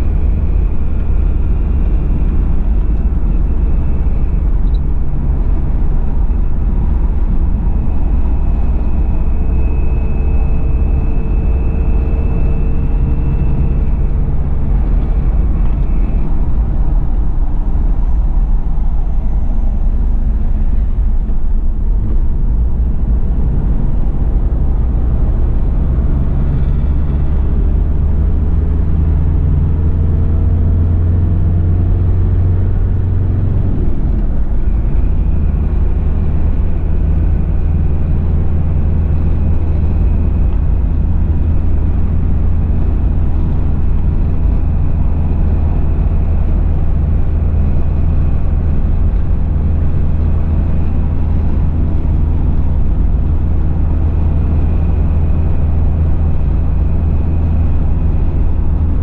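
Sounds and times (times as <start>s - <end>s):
diesel engine drone in cabin: 0.0s - 59.0s
faint high whistle: 7.7s - 14.4s.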